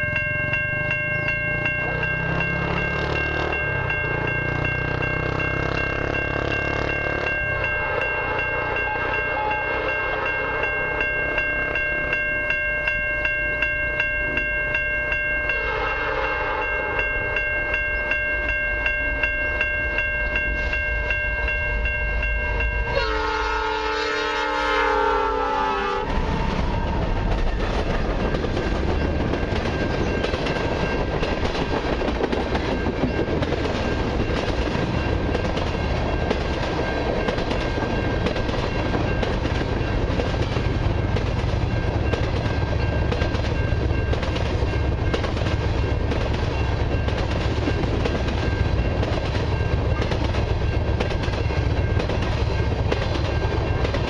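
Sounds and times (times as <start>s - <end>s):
train wheels rumbling and clattering: 0.0s - 15.6s, 24.9s - 54.0s
level-crossing bells ringing: 0.0s - 23.4s, 28.2s - 54.0s
train horn blast: 8.2s - 10.6s, 15.6s - 16.9s, 22.8s - 27.2s.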